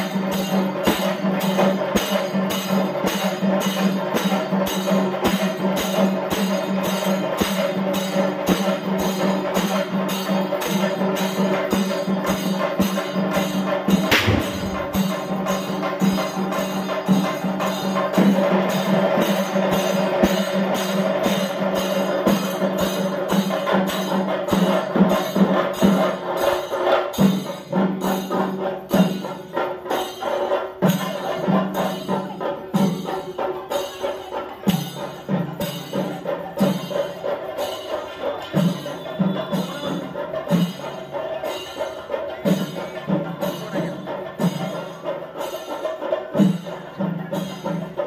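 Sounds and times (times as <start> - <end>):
drums and cymbals: 0.0 - 48.0
sharp loud crack: 14.1 - 15.6.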